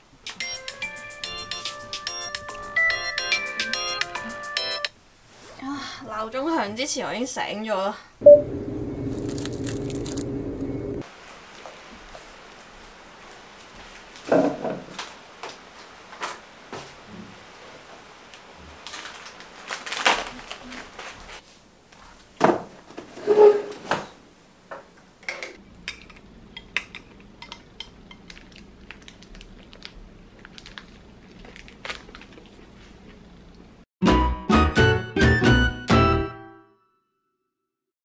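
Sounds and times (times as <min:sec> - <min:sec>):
plastic wrapper crinkling: 0:09.2 - 0:10.2, 0:18.7 - 0:21.4, 0:28.3 - 0:32.8.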